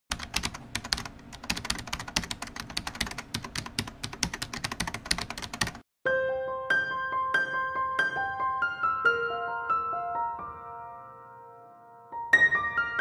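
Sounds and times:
fast typing on a keyboard: 0.1 - 5.8.

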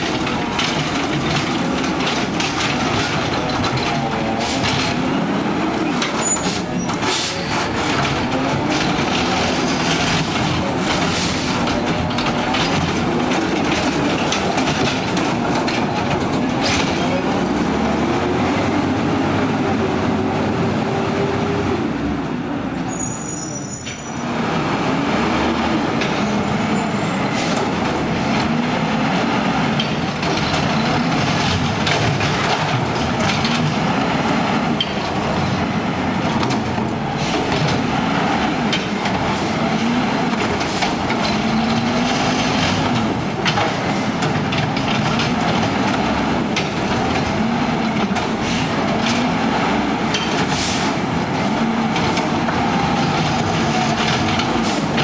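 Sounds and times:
garbage truck engine revving: 24.2 - 55.0.

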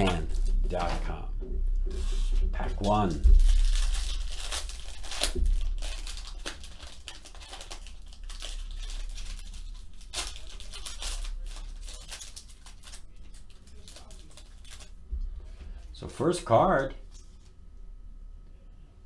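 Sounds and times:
foil wrapper crinkling and tearing: 2.1 - 15.0.

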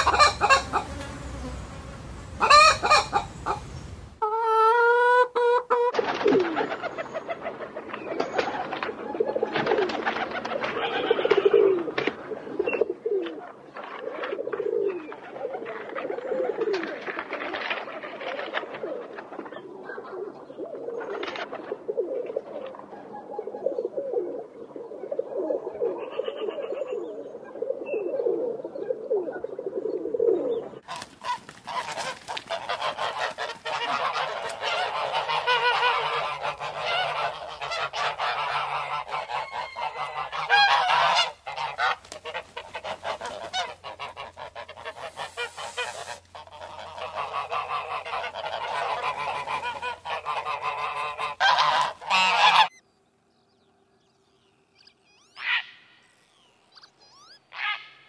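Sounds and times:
geese honking loudly: 0.0 - 1.6, 2.4 - 6.0, 30.8 - 52.8
pigeons cooing: 0.0 - 1.6, 2.4 - 52.7.

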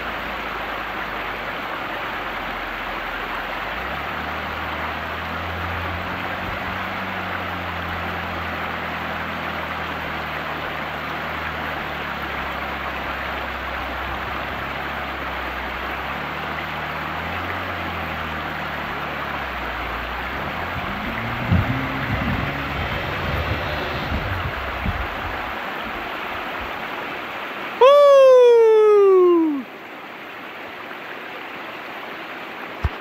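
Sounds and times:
river rapids rushing: 0.0 - 33.0
boat engine running: 0.1 - 25.9.

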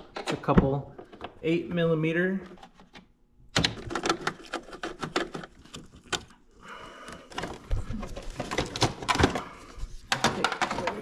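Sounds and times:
rustling and knocking: 2.4 - 6.3, 7.1 - 11.0.

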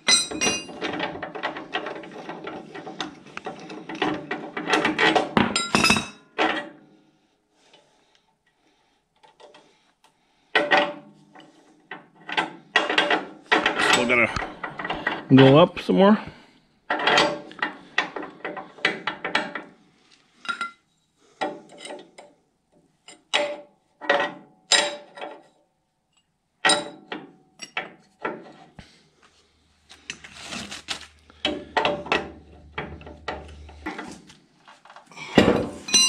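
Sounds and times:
tools and metal parts clinking: 0.0 - 6.7, 23.0 - 25.5, 26.6 - 28.6, 31.4 - 36.0.

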